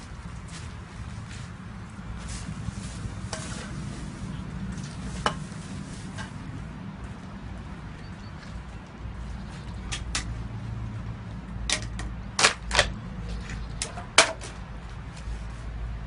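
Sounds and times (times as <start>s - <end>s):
hard objects clicking and knocking: 11.6s - 13.0s.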